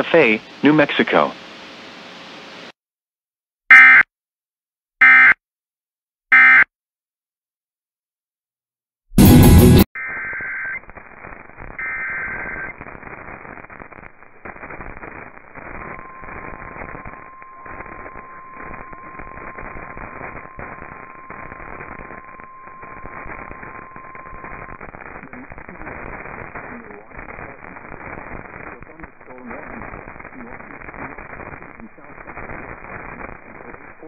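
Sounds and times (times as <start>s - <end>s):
crackling radio static: 0.0s - 2.8s, 9.2s - 34.0s
digital header tones: 6.3s - 6.7s, 15.7s - 27.9s.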